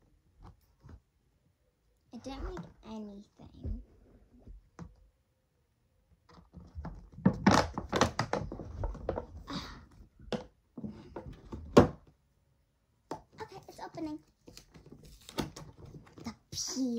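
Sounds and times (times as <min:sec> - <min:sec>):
packaging thunks and clatter: 0:06.3 - 0:09.5.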